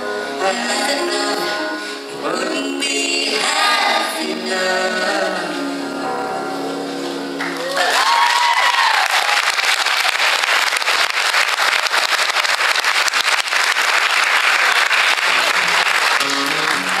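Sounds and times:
audience applauding and cheering: 0:07.4 - 0:17.0
person whooping: 0:07.6 - 0:09.7.

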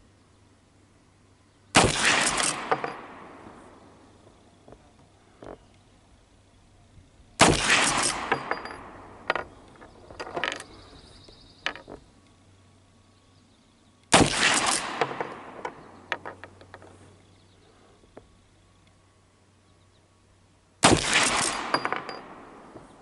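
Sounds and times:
rifle shots echoing: 0:01.8 - 0:03.8, 0:07.4 - 0:09.6, 0:14.1 - 0:16.1, 0:20.8 - 0:22.8.

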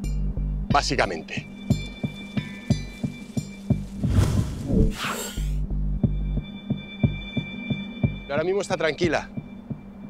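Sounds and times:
background music with low beat: 0:05.6 - 0:10.0.

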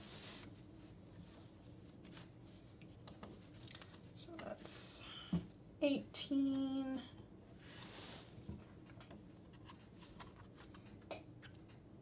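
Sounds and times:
soft swish of silk: 0:00.0 - 0:02.7.

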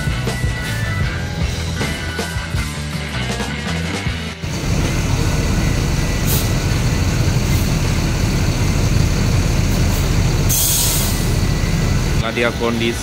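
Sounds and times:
diesel engine idling: 0:04.4 - 0:13.0
air hiss: 0:06.2 - 0:06.7, 0:09.9 - 0:11.4.

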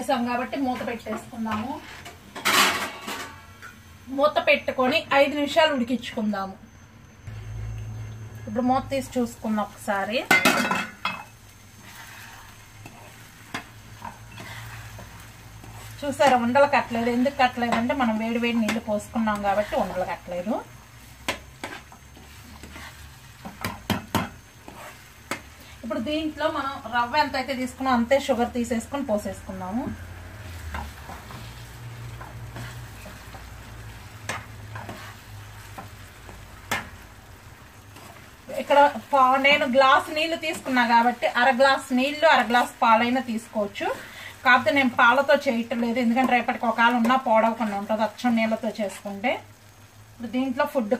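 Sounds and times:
spoon stirring thick semolina: 0:11.6 - 0:25.8, 0:30.4 - 0:37.0, 0:37.8 - 0:48.3
spoon knocking against pan: 0:23.4 - 0:24.4.

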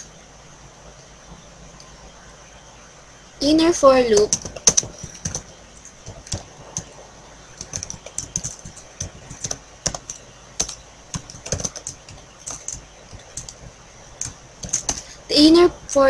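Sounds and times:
keyboard key clicks: 0:14.2 - 0:15.0.

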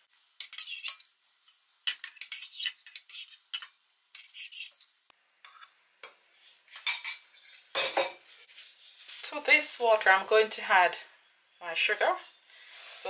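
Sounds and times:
metal spoon clinking on saucepan: 0:00.4 - 0:04.8.

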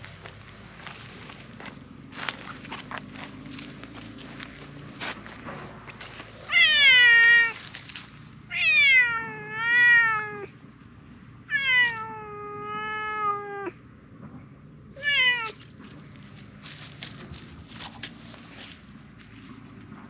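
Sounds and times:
cat meowing loudly: 0:06.5 - 0:07.6, 0:08.5 - 0:10.6, 0:11.5 - 0:13.8, 0:15.0 - 0:15.7.

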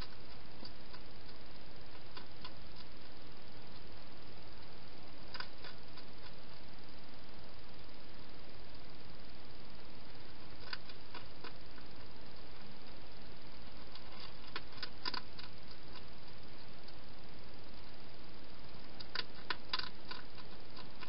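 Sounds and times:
hedgehog eating clicks and crunches: 0:00.0 - 0:03.9, 0:05.3 - 0:06.4, 0:10.4 - 0:12.5, 0:13.6 - 0:17.0, 0:19.0 - 0:21.0
microphone hiss: 0:00.0 - 0:21.0.

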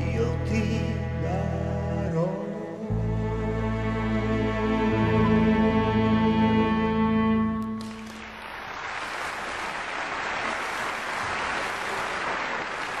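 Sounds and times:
theatre audience applauding: 0:07.6 - 0:13.0.

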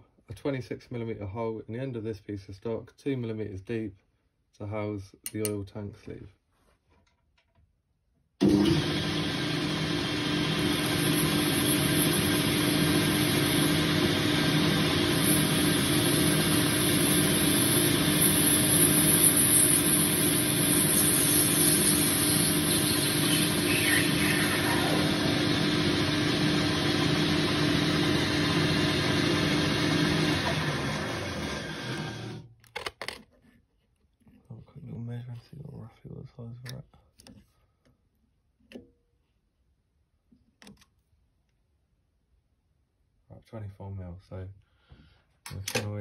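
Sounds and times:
lathe motor hum: 0:08.4 - 0:32.5
cutting tool hiss on metal: 0:15.2 - 0:25.0.

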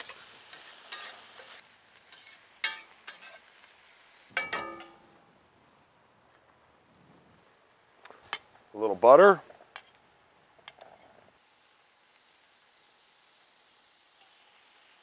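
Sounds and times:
faint sizzle: 0:00.0 - 0:15.0
metal spatula clinking on skillet: 0:00.5 - 0:03.4, 0:04.3 - 0:05.1
ringing metal clanks: 0:04.4 - 0:05.1.

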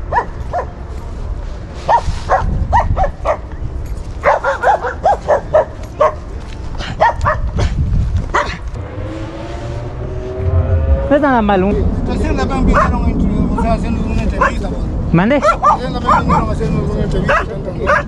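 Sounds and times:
dog barking: 0:00.1 - 0:00.8, 0:01.9 - 0:03.5, 0:04.2 - 0:07.7, 0:08.3 - 0:08.6, 0:12.7 - 0:13.1, 0:14.4 - 0:14.7, 0:15.4 - 0:16.6, 0:17.2 - 0:18.0.

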